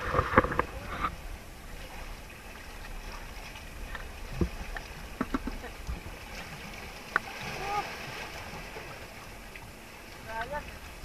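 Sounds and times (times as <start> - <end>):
wind on microphone: 0.0 - 7.9
sea noise: 0.0 - 11.0
sharp knocks: 5.2 - 5.6.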